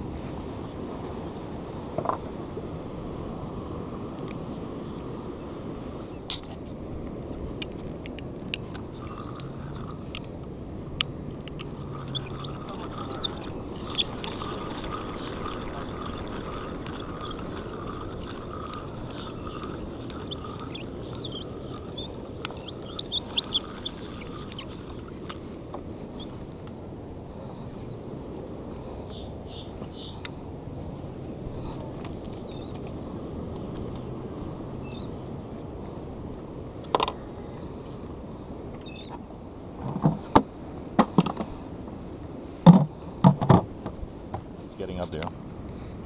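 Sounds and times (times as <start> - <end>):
fishing reel gears whirring: 7.8 - 10.4, 11.3 - 25.7.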